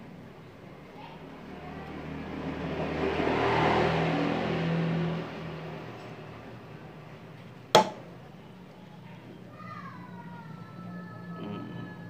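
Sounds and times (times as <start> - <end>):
motor vehicle passing by: 0.8 - 8.5.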